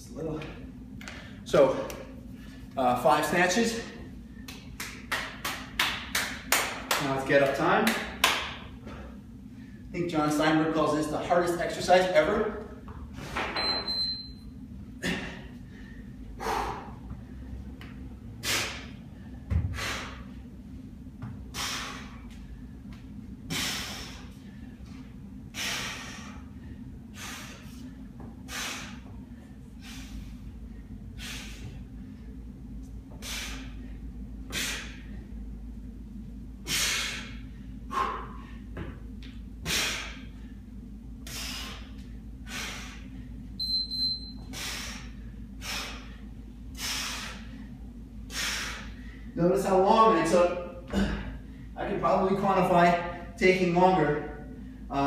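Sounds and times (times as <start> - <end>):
man breathing hard: 8.7 - 9.9, 15.0 - 20.6, 21.4 - 32.4, 33.1 - 35.4, 36.6 - 38.8, 39.6 - 43.5, 44.4 - 49.4.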